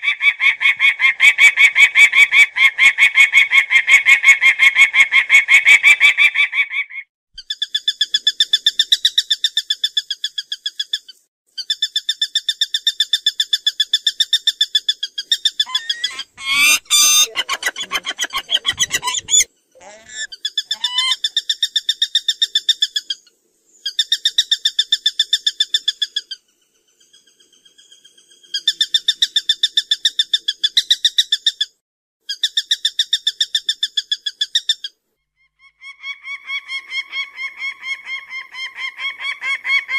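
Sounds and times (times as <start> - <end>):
wavering sliding bird call: 15.6 - 21.2
falcon cacking call: 15.7 - 21.2.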